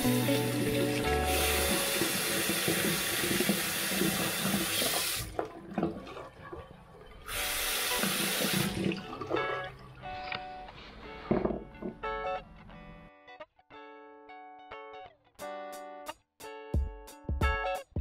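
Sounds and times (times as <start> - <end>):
tap running into basin: 0.0 - 9.8.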